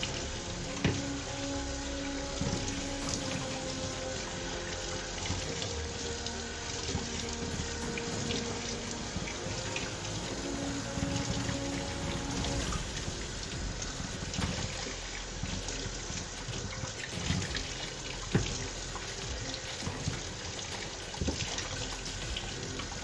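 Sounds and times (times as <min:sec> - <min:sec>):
faucet water splashing into sink: 0:00.0 - 0:23.0.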